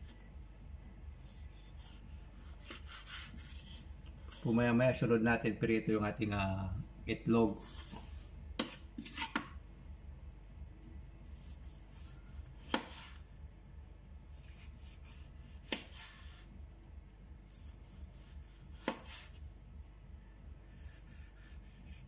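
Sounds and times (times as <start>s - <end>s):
knife slicing tomato: 1.2s - 4.5s, 7.6s - 9.5s, 11.3s - 13.3s, 14.4s - 16.5s, 17.5s - 19.4s, 20.7s - 22.0s.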